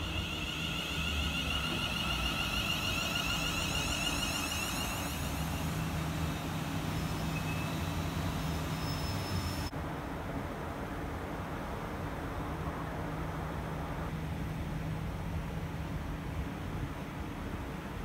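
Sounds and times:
high electric whine: 0:00.0 - 0:09.7
low hum: 0:00.0 - 0:09.7
train wheels rumbling on rail: 0:00.0 - 0:09.7.

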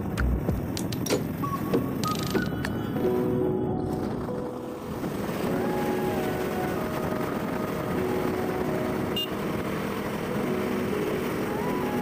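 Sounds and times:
road and wind noise: 0:00.0 - 0:12.0
background music held notes: 0:01.4 - 0:12.0.

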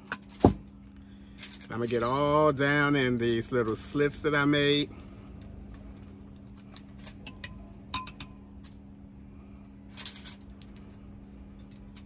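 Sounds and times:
faint steady hum: 0:00.0 - 0:12.0
metal spoon clinking: 0:07.3 - 0:08.4.

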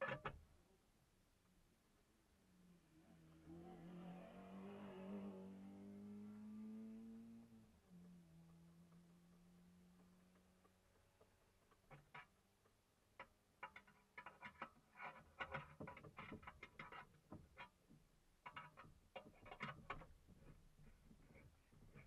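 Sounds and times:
faint clicking and rattles: 0:07.6 - 0:22.0.

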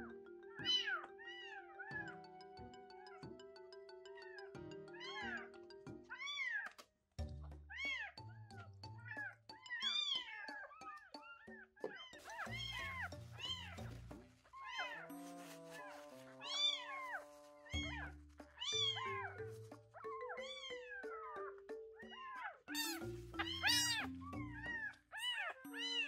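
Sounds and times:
background music: 0:00.0 - 0:06.6, 0:07.2 - 0:26.0
kitten mewing: 0:22.2 - 0:24.1.

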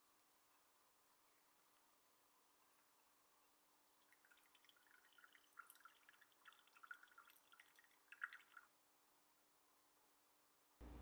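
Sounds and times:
coffee dripping into a mug: 0:03.0 - 0:08.8.

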